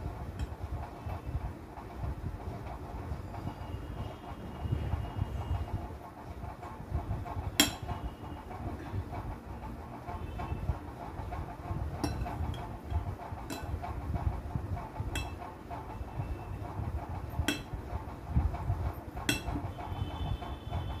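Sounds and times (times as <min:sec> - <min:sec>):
metal spoon clinking bowl: 0:13.5 - 0:13.8, 0:15.2 - 0:15.4, 0:17.5 - 0:17.7, 0:19.3 - 0:19.6.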